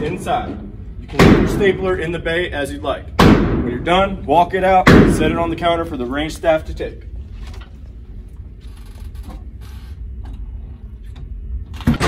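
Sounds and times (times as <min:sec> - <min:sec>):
door creaking: 0:08.6 - 0:10.4.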